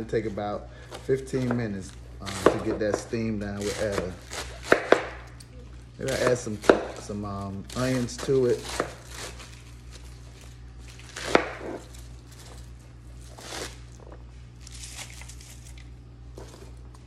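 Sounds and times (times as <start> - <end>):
low steady hum: 0.0 - 17.0
knife slicing cabbage: 2.2 - 5.2, 6.0 - 10.0, 11.0 - 12.6, 13.2 - 14.1.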